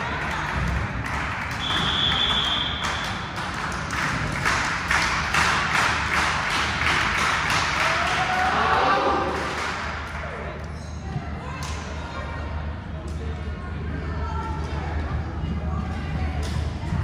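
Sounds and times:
rapid clapping: 0.2s - 8.5s
referee's whistle: 1.6s - 3.2s.

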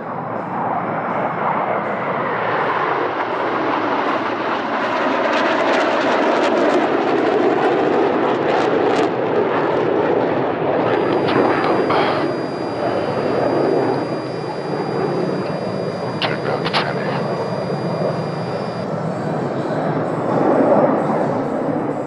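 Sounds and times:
jet noise crackling: 10.8s - 18.9s.

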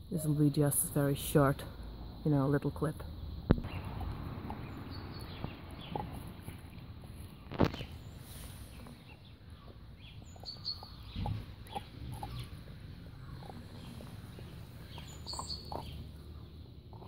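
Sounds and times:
dog chewing meat and bone: 3.6s - 8.1s, 8.7s - 17.0s.

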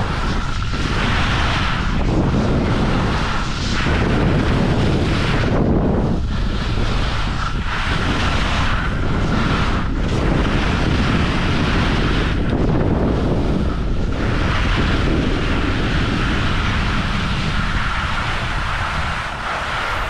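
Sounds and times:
wind noise on microphone: 0.0s - 20.0s
skis hissing over snow: 14.2s - 20.0s.

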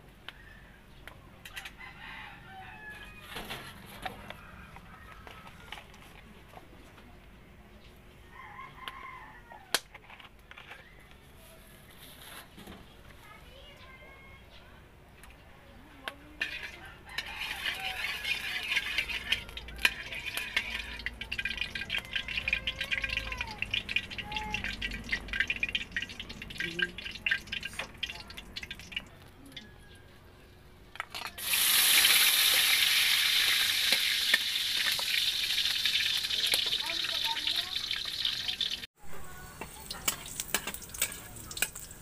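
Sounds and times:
metal spatula stirring: 16.4s - 29.0s, 39.6s - 42.0s
hot oil crackling in a wok: 16.4s - 29.2s, 31.1s - 42.0s
loud steady sizzle: 31.3s - 42.0s.

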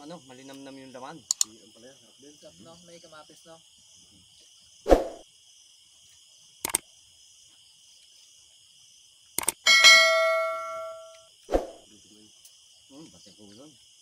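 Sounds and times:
crickets and insects chirping: 0.0s - 14.0s
sharp clicks: 1.3s - 1.5s, 6.6s - 6.8s, 9.4s - 9.6s
metal object clanging: 9.7s - 11.2s.

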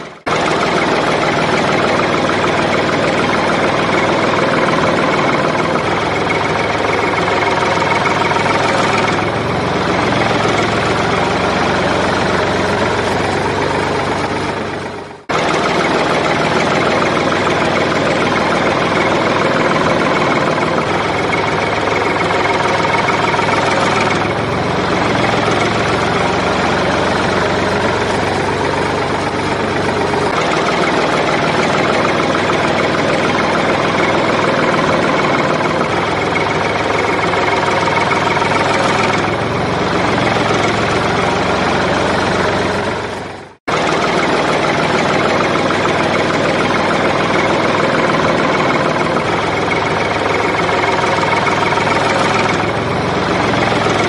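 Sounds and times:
tractor engine idling: 0.0s - 54.0s.

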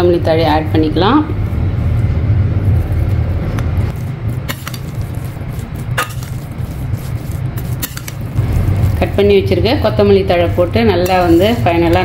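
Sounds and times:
steady low hum: 0.0s - 12.0s
spatula scraping metal pan: 4.4s - 8.2s.

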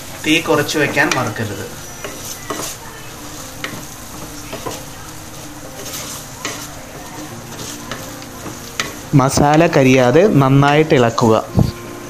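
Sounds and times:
low steady sizzle: 0.0s - 12.0s
wooden spatula scraping clay pot: 3.6s - 10.0s.

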